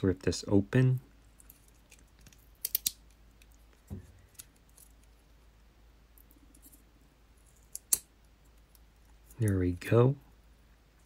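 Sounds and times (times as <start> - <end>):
crinkly packaging clicks: 1.4 - 3.6.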